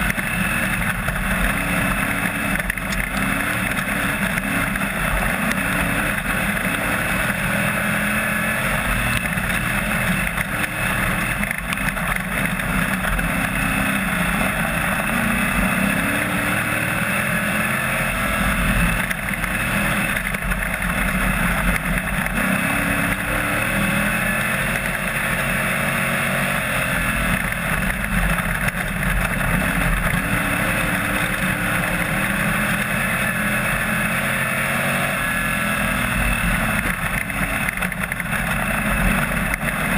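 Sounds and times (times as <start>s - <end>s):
race car engine running hard: 0.0s - 39.9s.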